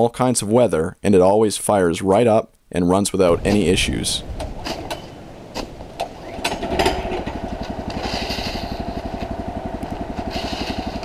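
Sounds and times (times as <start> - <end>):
sawmill engine running: 3.4 - 11.0.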